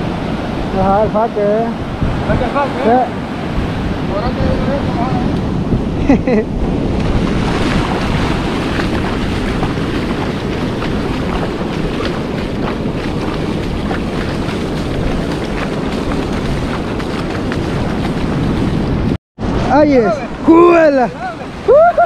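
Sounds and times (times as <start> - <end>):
ocean surf on beach: 0.0 - 22.0
wind buffeting microphone: 0.0 - 22.0
feet splashing in shallow water: 7.0 - 19.1.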